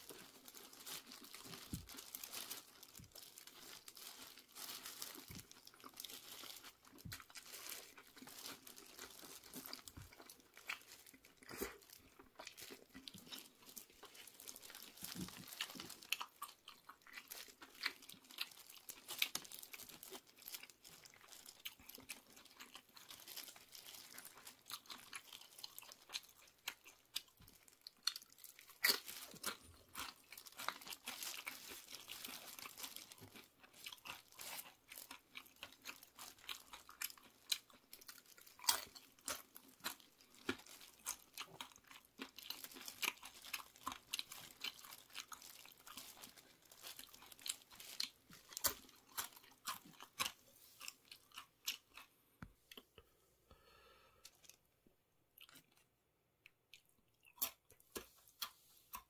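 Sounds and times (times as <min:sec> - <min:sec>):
paper wrapper crinkling: 0:00.0 - 0:11.8, 0:28.3 - 0:35.1, 0:42.5 - 0:49.4
chewing crunchy chips: 0:00.0 - 0:53.0, 0:55.4 - 0:59.0.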